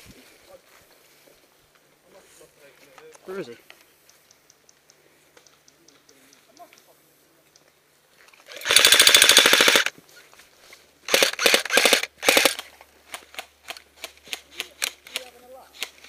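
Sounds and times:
faint ticks: 2.9s - 7.8s
airsoft rifle bursts: 8.5s - 9.9s, 11.1s - 16.0s.

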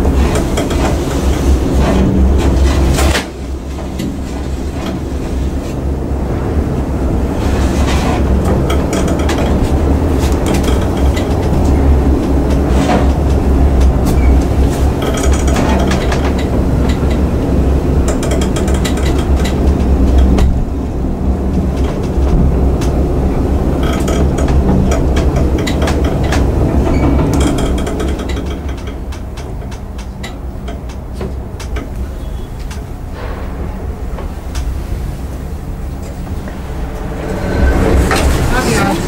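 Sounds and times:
elevator car clicking and rattling: 0.0s - 39.0s
elevator car rumble: 0.0s - 39.0s.

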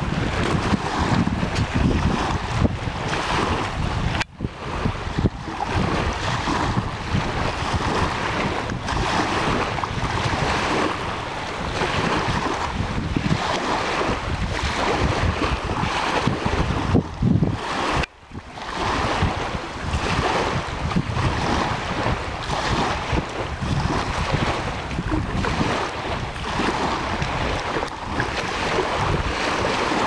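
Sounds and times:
waves lapping on shore: 0.0s - 30.0s
wind buffeting microphone: 0.0s - 30.0s.

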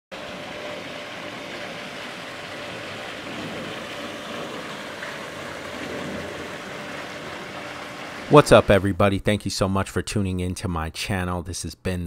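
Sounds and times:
water splashing into pool: 0.1s - 8.9s.

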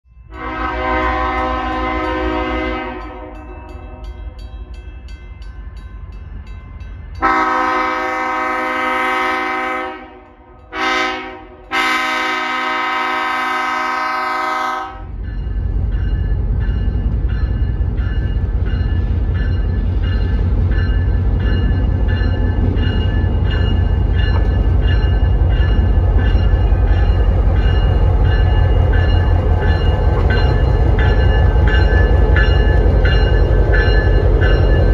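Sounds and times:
locomotive horn blasts: 0.3s - 3.9s, 7.2s - 15.2s.

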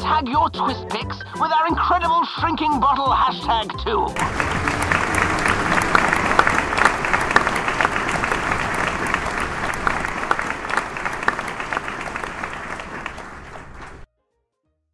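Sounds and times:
audience applause: 4.2s - 14.0s.

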